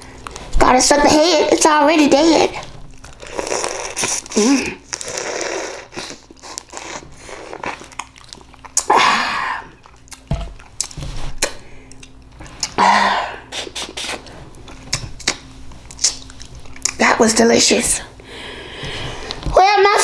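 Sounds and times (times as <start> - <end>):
chewing: 2.6 - 9.0, 9.6 - 12.8, 14.0 - 17.0
sucking juice from crawfish: 3.1 - 10.3.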